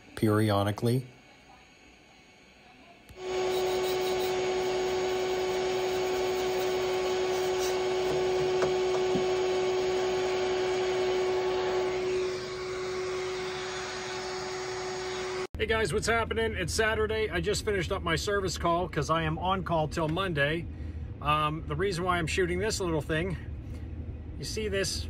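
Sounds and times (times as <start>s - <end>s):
vacuum cleaner hum: 0.0s - 15.6s.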